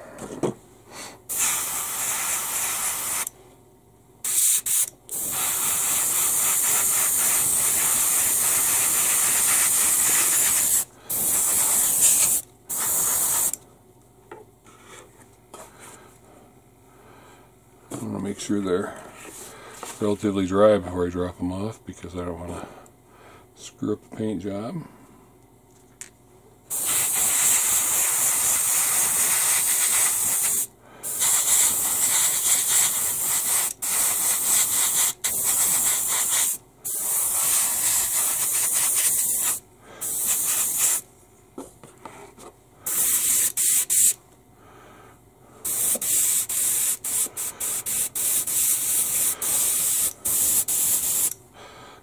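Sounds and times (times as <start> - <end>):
airbrush hissing: 1.3 - 3.3, 4.2 - 13.6, 26.7 - 41.1, 42.9 - 44.2, 45.6 - 51.4.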